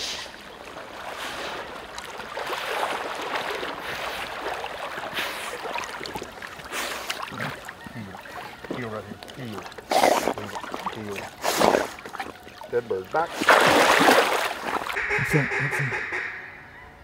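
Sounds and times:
dog swimming and splashing: 0.6 - 15.0.

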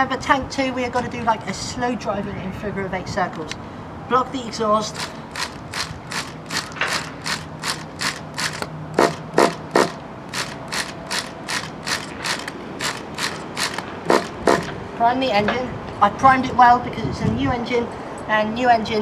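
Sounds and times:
engine starter ratcheting clicks: 4.9 - 14.8.

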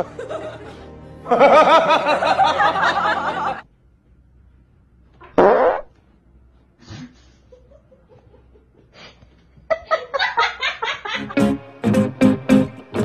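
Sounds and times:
person laughing loudly: 0.0 - 3.6.

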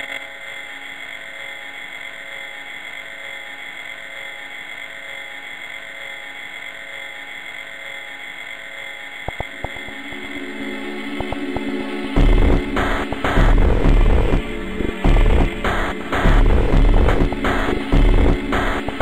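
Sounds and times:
electronic drone chord: 0.0 - 19.0
sharp drum hits: 12.2 - 19.0.

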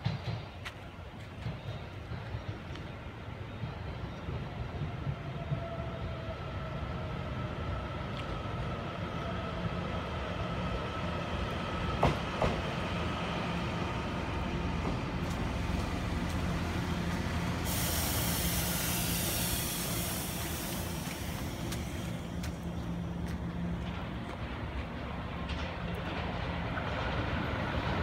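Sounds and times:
train running hum with whine: 0.0 - 28.0
loud hiss of air from train: 15.3 - 23.2.

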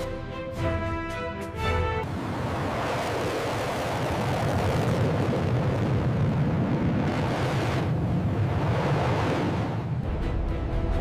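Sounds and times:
jet engine afterburner roar: 2.0 - 10.0.

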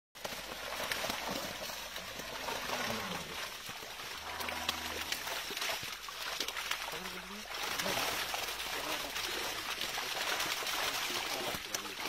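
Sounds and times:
water trickling from a net: 0.2 - 12.0.

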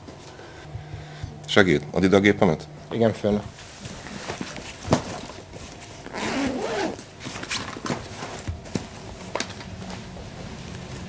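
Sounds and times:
clicks and knocks of bag handling: 4.2 - 9.8
camera bag zip: 6.1 - 7.1.

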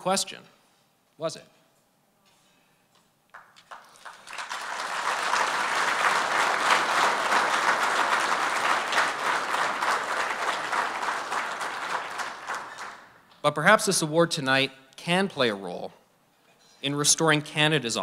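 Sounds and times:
audience applauding: 3.3 - 13.2.

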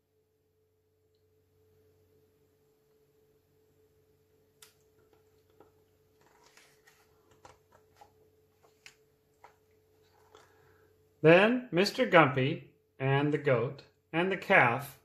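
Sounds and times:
faint steady hum: 0.0 - 15.0
book page turning: 5.1 - 10.6.

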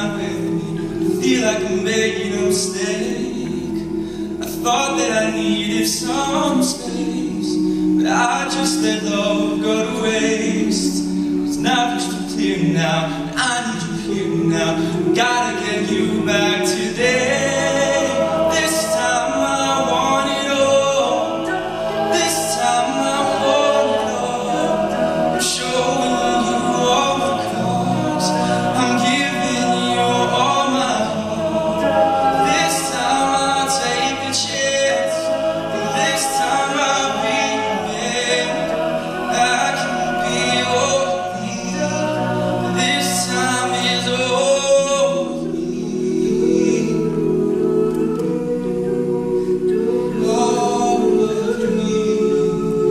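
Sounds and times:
male a cappella group singing: 0.0 - 52.9.

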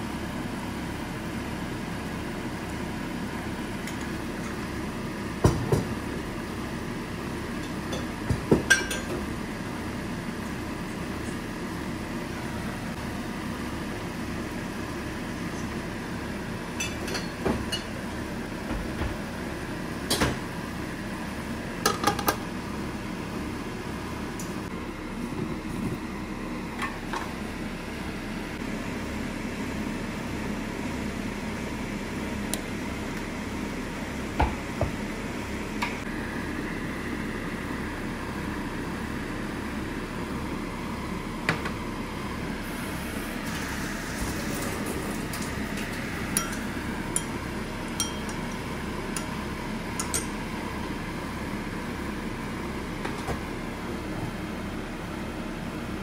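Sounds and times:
food simmering with bubbling hiss: 0.0 - 16.8.

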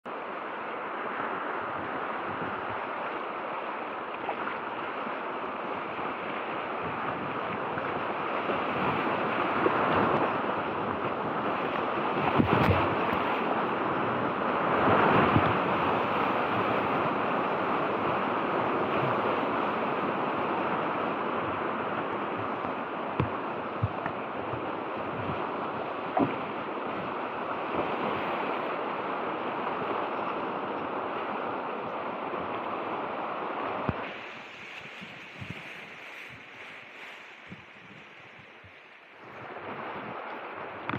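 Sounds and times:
whitewater rapids rushing: 0.1 - 40.9.

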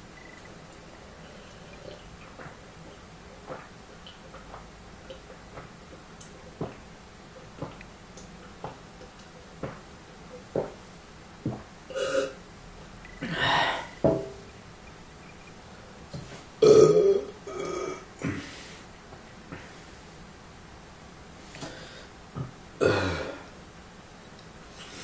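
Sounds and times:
man burping: 11.9 - 12.4, 16.6 - 18.5, 22.8 - 23.5
glass knocking on table: 14.0 - 14.4.

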